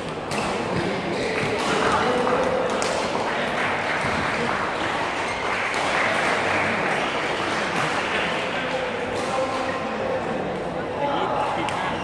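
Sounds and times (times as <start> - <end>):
spectators applauding: 1.9 - 8.9.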